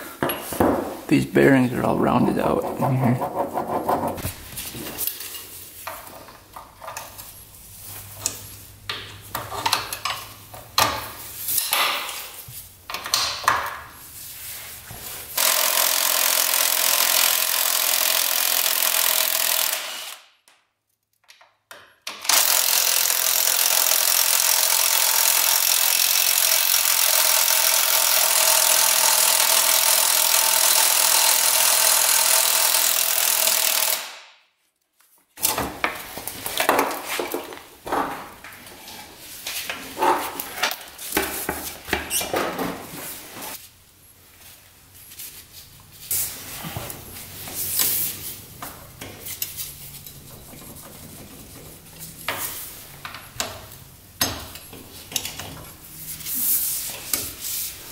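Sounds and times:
power tool running: 15.4 - 20.2, 22.3 - 34.2.

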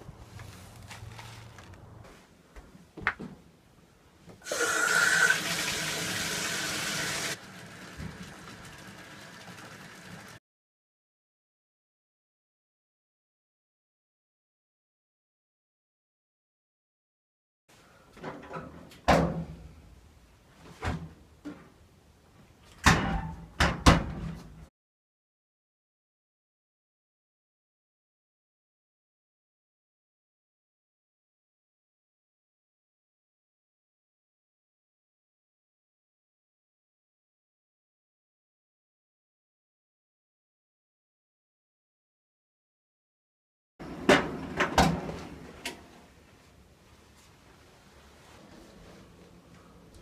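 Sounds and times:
water rushing from faucet: 4.4 - 10.4
door banging shut: 22.8 - 24.4.

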